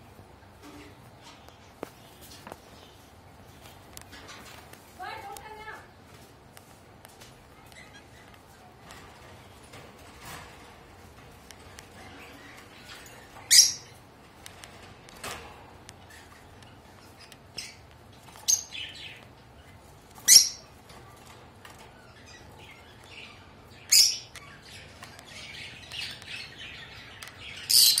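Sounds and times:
soft bird chattering: 0:07.5 - 0:08.8, 0:11.6 - 0:14.1, 0:21.8 - 0:28.0.

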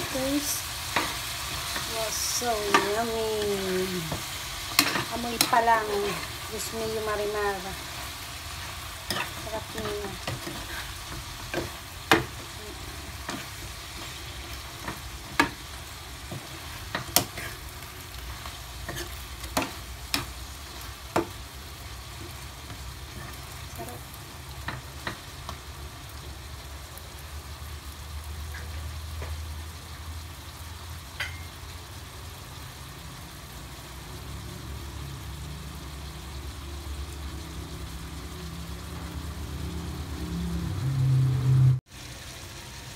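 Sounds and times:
shrimp sizzling in a frying pan: 0:00.0 - 0:42.9
metal spoon clinking on pan: 0:31.2 - 0:31.5.

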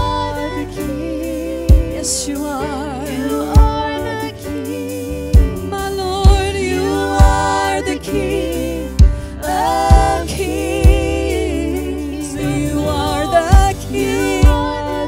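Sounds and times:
electric bass: 0:00.0 - 0:15.0
women singing with vibrato: 0:00.0 - 0:15.0
deep drum thumps: 0:06.3 - 0:06.6, 0:09.0 - 0:09.3, 0:09.9 - 0:11.3, 0:12.2 - 0:14.8.

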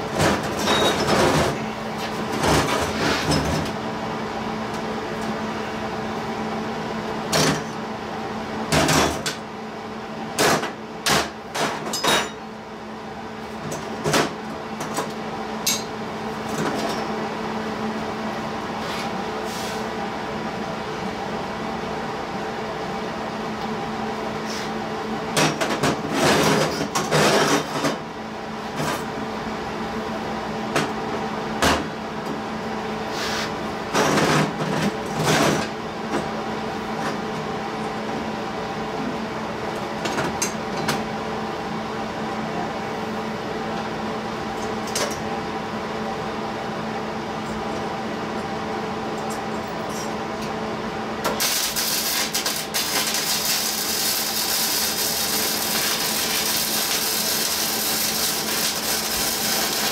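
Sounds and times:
steady shop hum: 0:00.0 - 0:59.9
welder arc crackling sizzle: 0:51.4 - 0:59.9.

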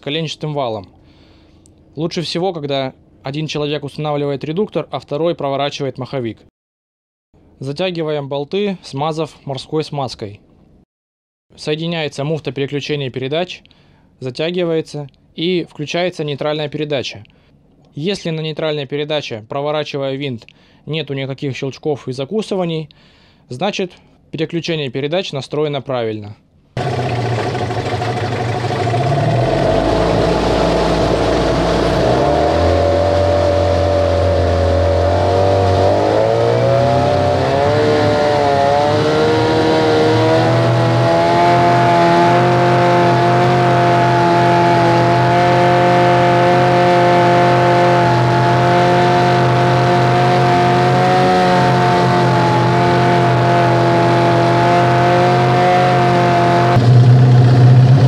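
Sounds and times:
propeller churning water: 0:26.8 - 0:54.8
outboard motor running: 0:26.8 - 0:58.0.

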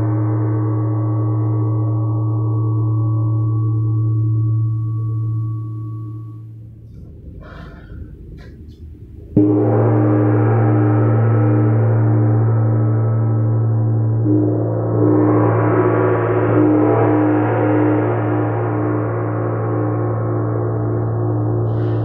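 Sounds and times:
gong struck with mallet: 0:09.3 - 0:22.0
gong ringing: 0:09.4 - 0:22.0.

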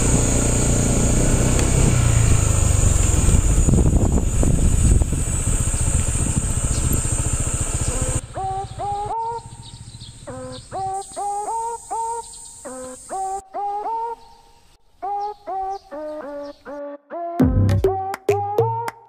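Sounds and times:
motorcycle engine running: 0:00.0 - 0:13.3
bird chirps: 0:06.6 - 0:19.0.

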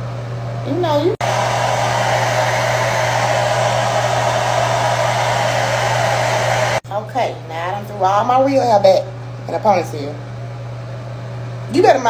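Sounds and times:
hair dryer blowing: 0:01.2 - 0:06.8.

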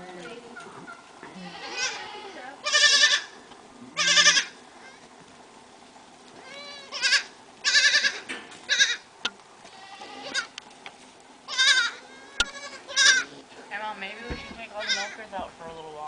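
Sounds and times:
goat kids bleating: 0:00.6 - 0:05.2, 0:06.3 - 0:10.6, 0:11.4 - 0:15.3.

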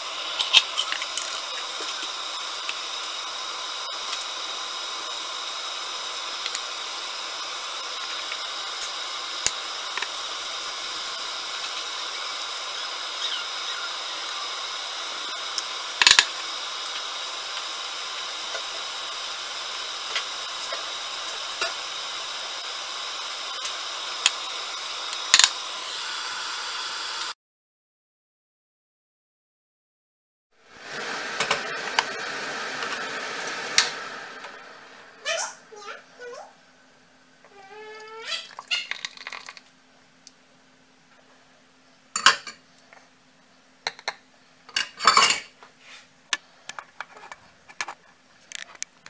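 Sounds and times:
steady hiss: 0:00.0 - 0:27.4.

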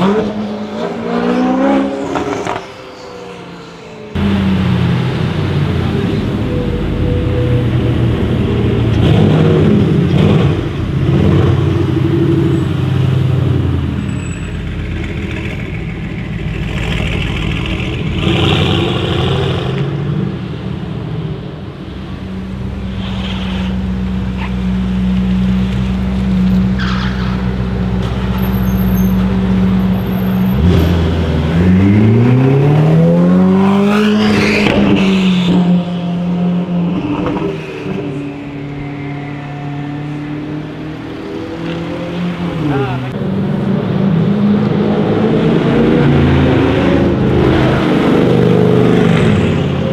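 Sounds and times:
car engine idling and revving: 0:00.0 - 0:49.9.

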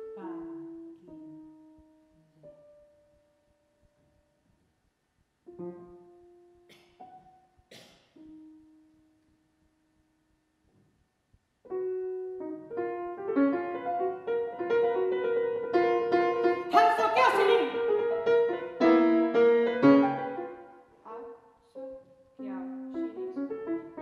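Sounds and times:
grand piano playing: 0:11.6 - 0:24.0.

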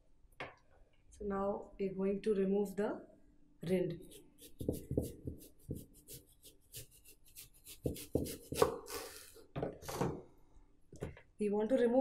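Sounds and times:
knife sawing through watermelon rind: 0:04.1 - 0:09.2
knife knocking on wooden board: 0:04.6 - 0:05.9, 0:07.8 - 0:08.8.

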